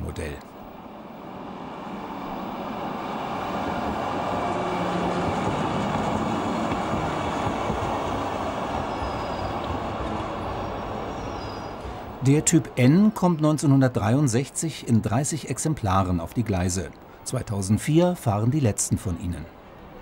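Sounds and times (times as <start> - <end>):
tram wheels rolling on rails: 0.7 - 14.4.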